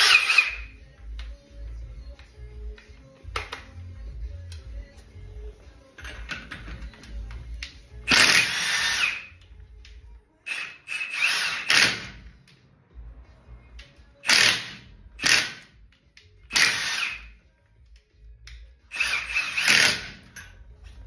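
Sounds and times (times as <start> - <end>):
impact wrench hammering: 7.6 - 9.5, 10.5 - 12.4, 14.2 - 17.4, 18.9 - 20.6.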